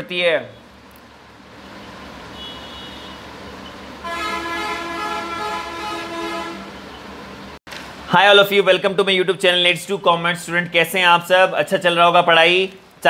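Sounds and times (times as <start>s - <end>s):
vehicle horn blast: 2.3s - 3.3s, 4.0s - 6.8s.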